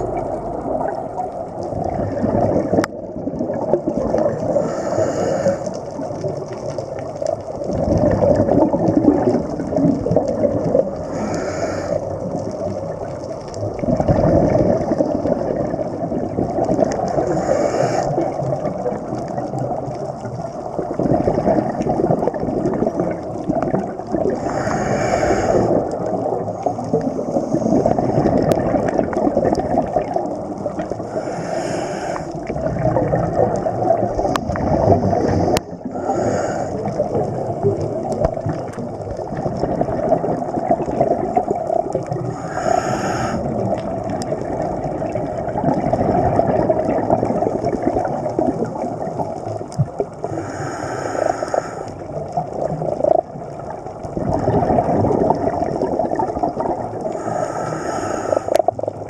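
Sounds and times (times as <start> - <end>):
bubbling rumble of exhaled air: 0.0 - 59.0
regulator inhalation hiss: 4.5 - 5.8, 11.1 - 12.1, 17.2 - 18.2, 24.4 - 25.8, 31.0 - 32.4, 35.2 - 37.0, 42.3 - 43.5, 50.2 - 52.0, 57.1 - 58.6.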